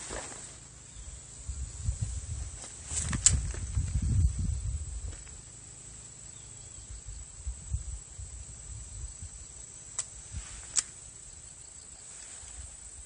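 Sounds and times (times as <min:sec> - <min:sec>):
low uneven rumble: 0:00.0 - 0:09.5
high-pitched insect chorus: 0:00.0 - 0:13.0
sharp clicks: 0:03.0 - 0:03.6, 0:09.9 - 0:11.0.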